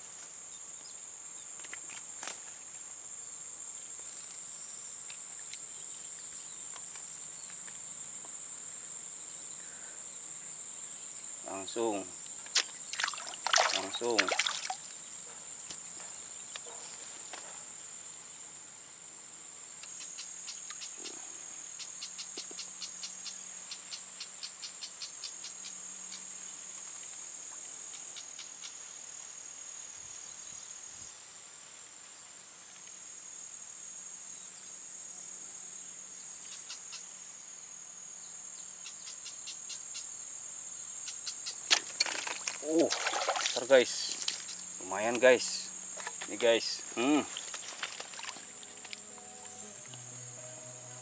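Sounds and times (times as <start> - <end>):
insects trilling: 0.0 - 51.0
insect clicking chirps: 19.8 - 21.2, 21.8 - 26.3, 27.9 - 28.8, 36.5 - 37.1, 38.8 - 40.1, 41.0 - 42.8, 43.6 - 50.3.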